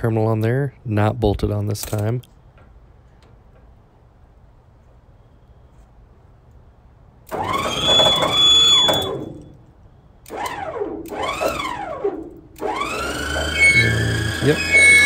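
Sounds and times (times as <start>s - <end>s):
electric winch motor whine: 7.3s - 9.6s, 10.2s - 15.0s.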